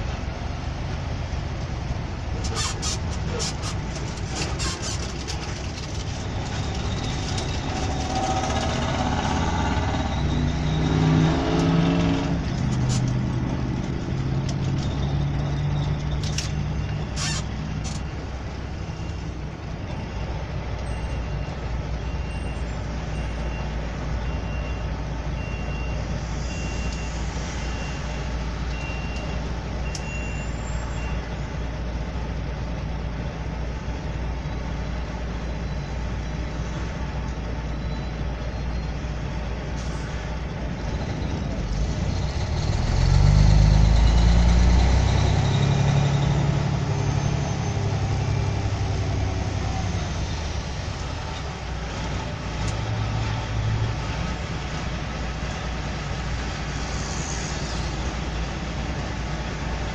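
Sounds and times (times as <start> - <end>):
vehicle engine from inside cab: 0.0 - 20.0, 40.6 - 59.9
faint high beep: 28.7 - 31.2.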